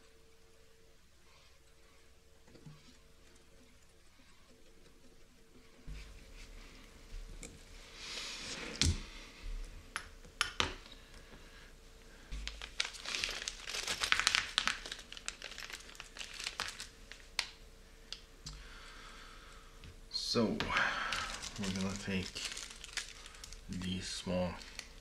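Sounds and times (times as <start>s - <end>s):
plastic bag crinkling: 12.3s - 17.6s, 21.0s - 25.0s.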